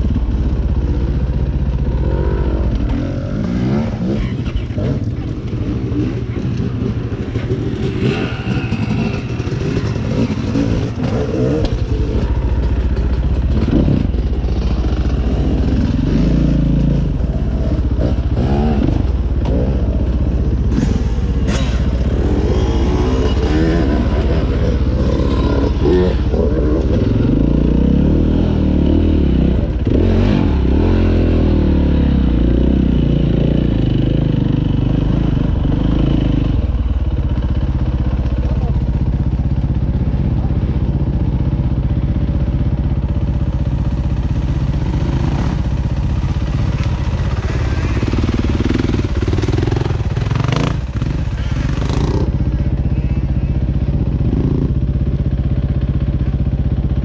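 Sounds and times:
dirt bike engine revving: 1.0s - 37.5s, 43.4s - 55.1s
bike knocking and rattling: 8.8s - 22.6s.

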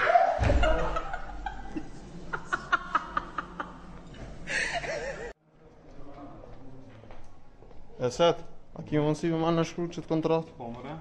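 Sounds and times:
woman laughing: 0.6s - 5.3s.

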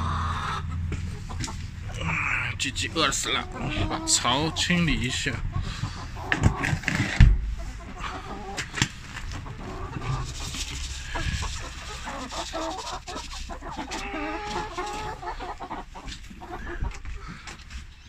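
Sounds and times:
chickens clucking: 0.0s - 18.0s
grain scraping and rattling: 9.1s - 14.1s.

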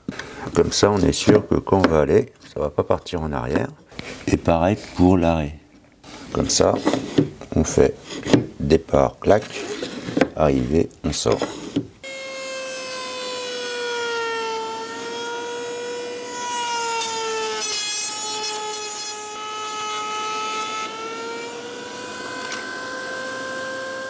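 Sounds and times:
router bit cutting wood hiss: 11.3s - 24.0s
router whining: 11.4s - 24.0s.

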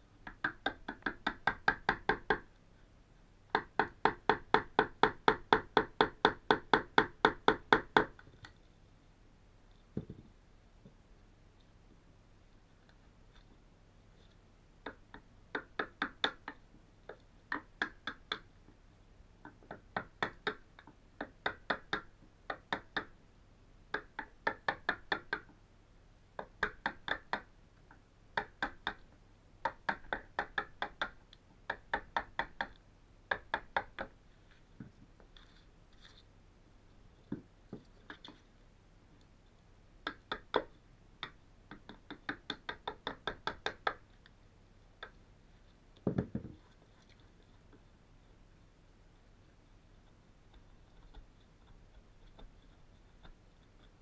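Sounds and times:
chisel chipping wood: 0.3s - 2.5s, 3.5s - 8.3s, 14.8s - 18.5s, 19.4s - 23.1s, 26.4s - 27.5s, 28.4s - 29.0s, 29.6s - 34.2s, 40.0s - 44.1s, 50.5s - 54.0s.

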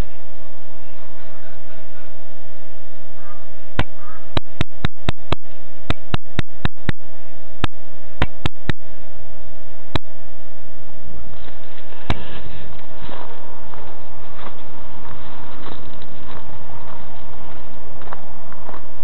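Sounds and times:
steady hum: 0.0s - 19.0s
sharp clicks: 3.8s - 7.0s, 7.6s - 8.8s.

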